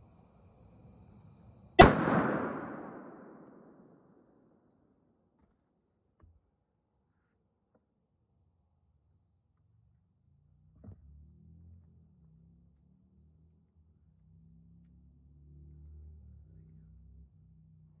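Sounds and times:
crickets chirping: 0:00.0 - 0:18.0
rifle shot echoing: 0:01.8 - 0:04.0.

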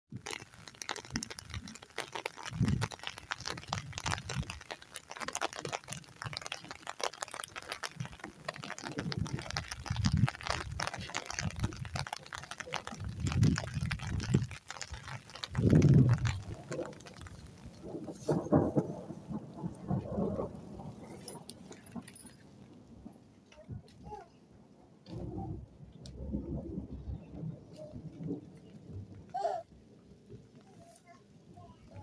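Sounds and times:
low microphone rumbles: 0:02.4 - 0:04.6, 0:08.0 - 0:23.1, 0:25.1 - 0:30.6.

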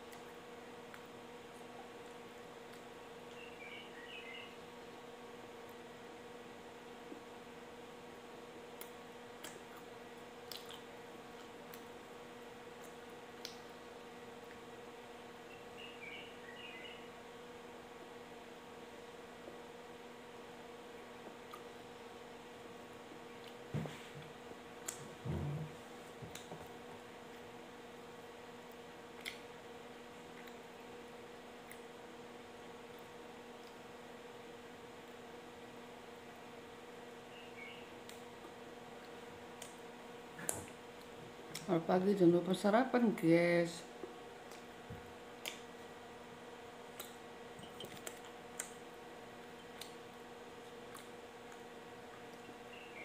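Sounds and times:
low electrical hum: 0:00.0 - 0:53.0
chewing: 0:08.8 - 0:11.9.

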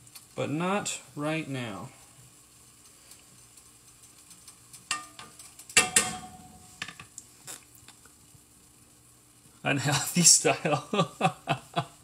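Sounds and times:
utensil knocking and scraping skillet: 0:04.9 - 0:07.1.

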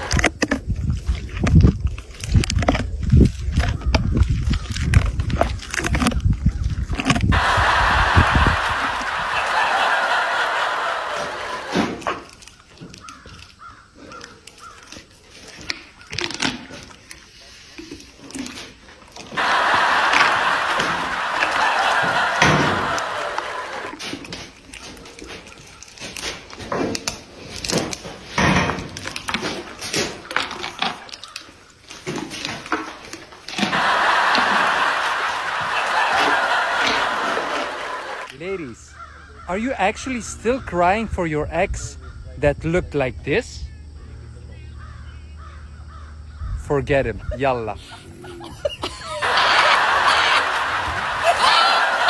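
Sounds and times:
camel biting cactus: 0:00.0 - 0:09.6, 0:11.1 - 0:38.4.

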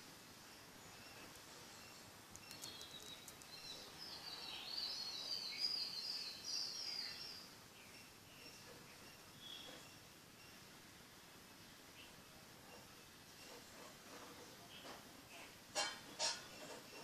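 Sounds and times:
small bird twittering: 0:00.5 - 0:10.7
faint clicks: 0:02.3 - 0:03.6.

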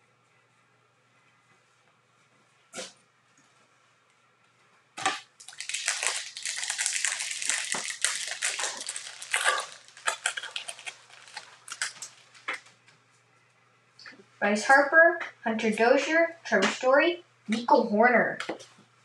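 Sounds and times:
foil wrapper ripping: 0:05.0 - 0:12.5
foil crinkling: 0:05.0 - 0:12.6.

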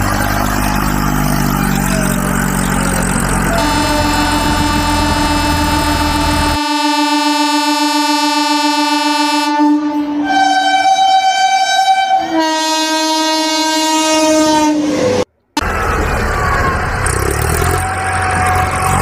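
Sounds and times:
train horn: 0:03.5 - 0:15.0.

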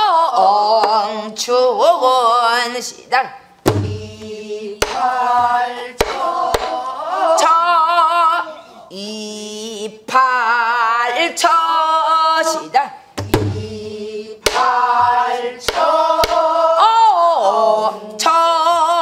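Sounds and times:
barrel drum strokes: 0:03.6 - 0:06.7, 0:13.2 - 0:16.4
woman singing folk song: 0:16.8 - 0:19.0.

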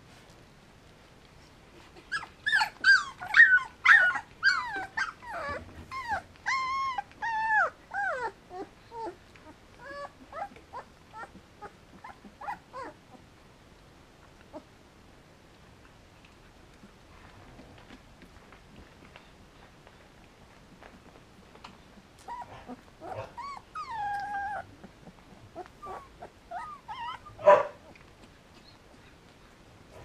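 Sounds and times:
dog whimpering and whining: 0:01.9 - 0:13.0, 0:22.2 - 0:28.0.

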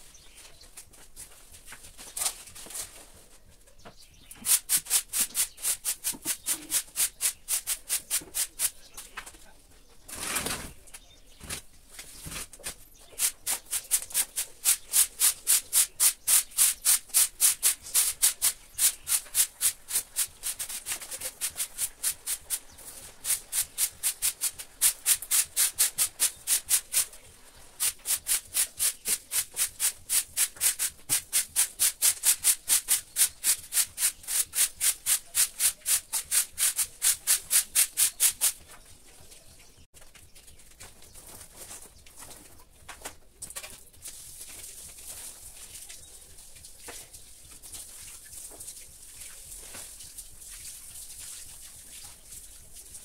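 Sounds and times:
broom sweeping concrete floor: 0:04.1 - 0:09.3, 0:11.5 - 0:38.8, 0:44.0 - 0:53.0.

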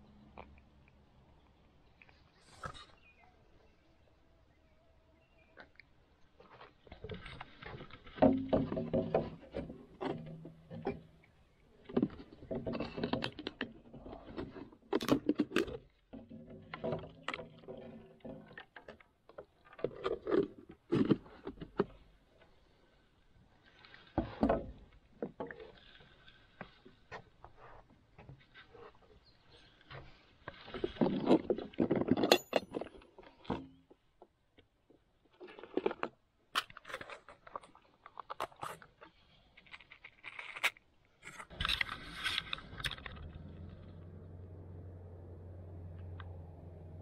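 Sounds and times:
fishing tackle knocks and rattles: 0:06.9 - 0:11.2.

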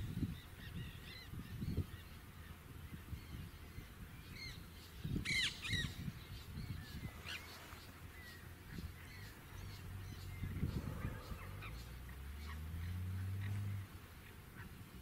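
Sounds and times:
parakeet calling: 0:05.2 - 0:06.0.

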